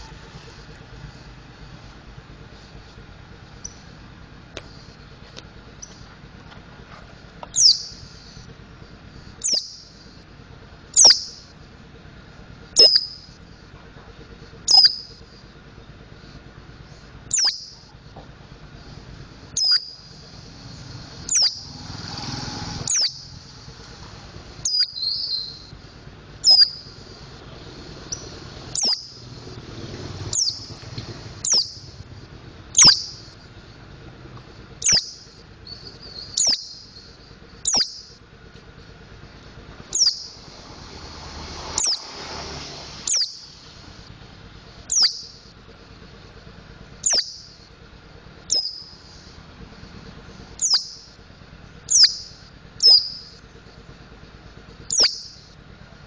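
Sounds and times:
soft bird twittering: 3.5s - 6.1s, 7.4s - 10.3s, 10.9s - 11.6s, 12.7s - 13.5s, 14.3s - 18.0s, 18.8s - 25.8s, 26.4s - 32.1s, 32.7s - 33.9s, 34.7s - 38.2s, 39.8s - 40.9s, 41.5s - 42.3s, 42.9s - 44.0s, 44.7s - 45.6s, 47.0s - 47.8s, 48.4s - 49.4s, 50.5s - 51.2s, 51.8s - 53.8s, 54.8s - 55.6s
bird high whistled notes: 7.6s - 8.1s, 9.4s - 9.9s, 11.0s - 11.4s, 12.8s - 13.2s, 14.7s - 15.1s, 17.3s - 17.8s, 19.6s - 20.1s, 21.3s - 21.7s, 22.8s - 23.4s, 24.6s - 25.7s, 26.4s - 27.0s, 28.8s - 29.2s, 32.8s - 33.2s, 34.8s - 37.1s, 37.7s - 38.2s, 39.9s - 40.4s, 43.1s - 43.5s, 44.9s - 45.4s, 47.0s - 47.5s, 48.5s - 49.1s, 50.6s - 51.0s, 54.9s - 55.4s.

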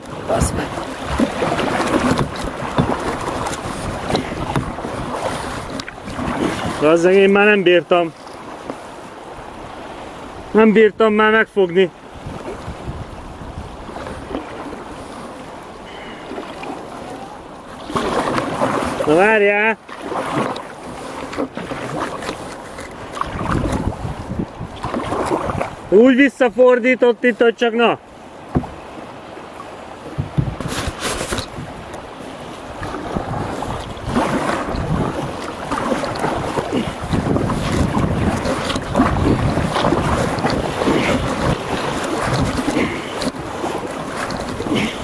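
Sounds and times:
wind rumbling on microphone: 0.0s - 7.4s, 12.0s - 15.4s, 20.2s - 26.0s, 29.9s - 45.0s
river water rushing and splashing: 0.0s - 45.0s.

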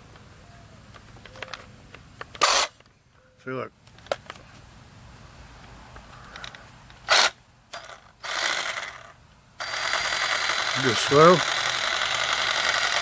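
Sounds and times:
reciprocating saw running: 7.1s - 13.0s.

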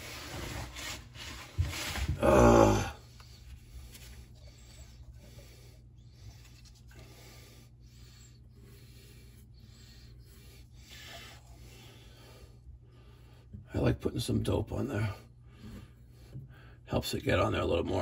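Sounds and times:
rustling and handling noise: 0.0s - 2.2s
steady low hum: 0.0s - 18.0s.

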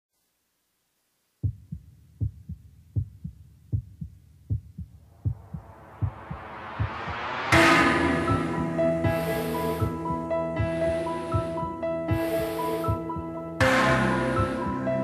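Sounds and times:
heartbeat thumps: 1.4s - 13.9s
rising wash of sound: 5.1s - 9.9s.

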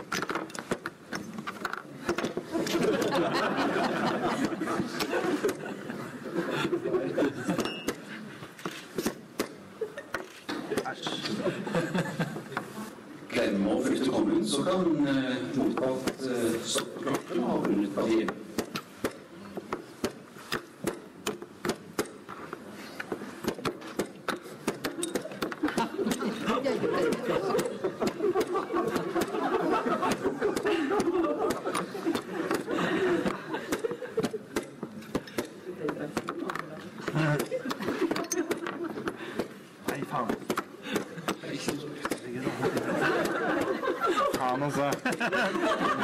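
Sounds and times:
chess pieces clacking on board: 0.0s - 3.1s, 16.8s - 26.3s
onlookers chuckling and murmuring: 1.5s - 13.3s, 22.2s - 46.0s
high beep: 7.6s - 8.0s.

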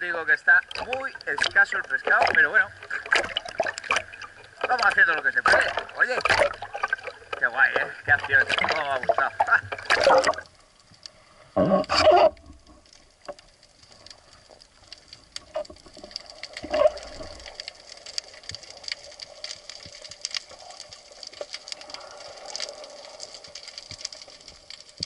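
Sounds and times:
faint steady hum: 0.0s - 25.0s
steady underwater hiss: 0.0s - 25.0s
underwater crackling and clicking: 0.0s - 25.0s
bubbly burst: 0.6s - 10.4s.

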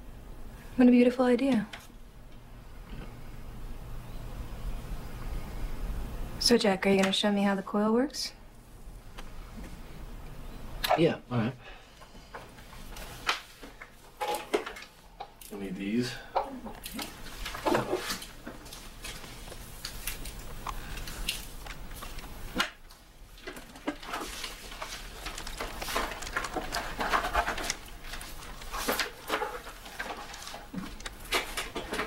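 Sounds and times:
rustling of gloves and goggles: 11.8s - 32.0s.

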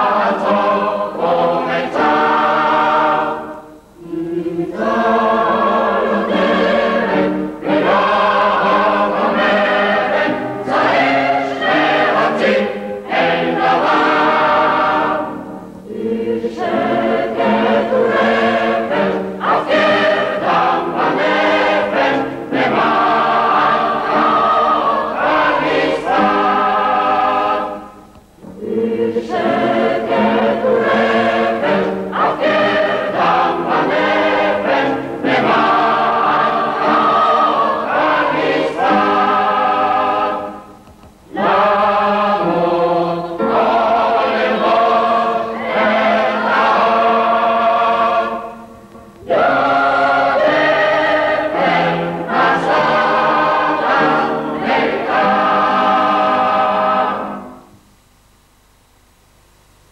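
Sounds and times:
choir singing: 0.0s - 57.8s.

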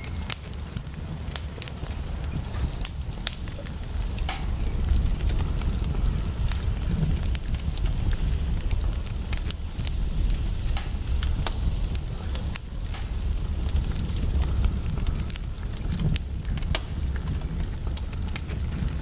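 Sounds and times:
fire crackling and popping: 0.0s - 19.0s
steady low rumble: 0.0s - 19.0s.

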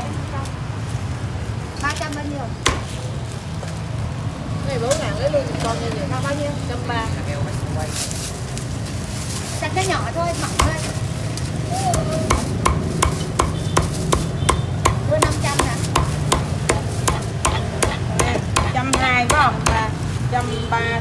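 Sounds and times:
cleaver chopping on wooden block: 2.6s - 2.9s, 11.9s - 19.8s.

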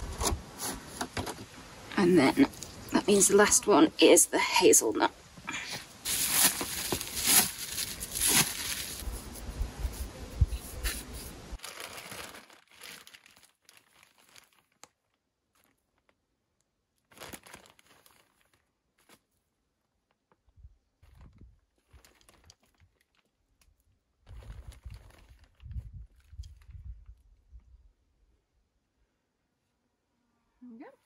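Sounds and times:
cling film crinkling and tearing: 6.0s - 9.4s, 10.6s - 16.2s, 17.0s - 19.2s, 21.0s - 23.7s.

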